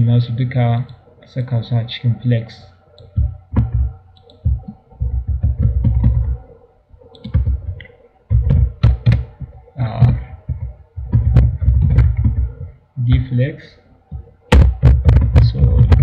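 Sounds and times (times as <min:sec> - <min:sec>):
computer keyboard typing: 0:02.9 - 0:13.2.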